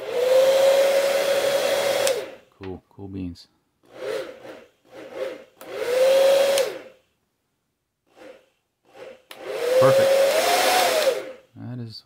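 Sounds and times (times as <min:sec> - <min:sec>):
blow dryer blowing air: 0:00.0 - 0:02.4, 0:03.8 - 0:07.0, 0:08.1 - 0:11.5.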